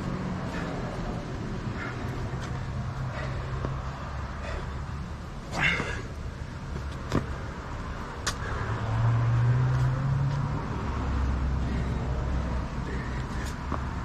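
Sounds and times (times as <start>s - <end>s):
passing vehicle engine hum: 0.0s - 14.0s
sharp knocks on asphalt: 6.7s - 7.4s.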